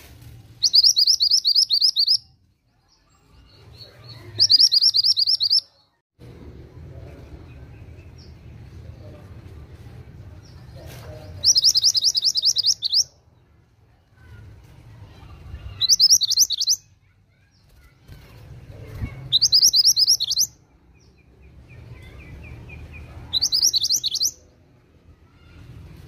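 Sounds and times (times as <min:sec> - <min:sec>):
bird trilling: 0:00.6 - 0:02.3, 0:04.2 - 0:05.7, 0:11.4 - 0:13.1, 0:15.6 - 0:16.9, 0:19.2 - 0:20.5, 0:23.3 - 0:24.4.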